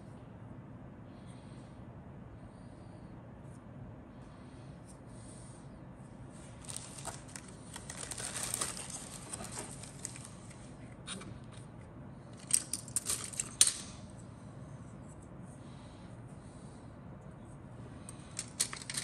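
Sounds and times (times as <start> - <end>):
plastic crinkling rustle: 6.6 - 10.6
plastic pieces clicking together: 12.4 - 14.0, 18.1 - 19.0.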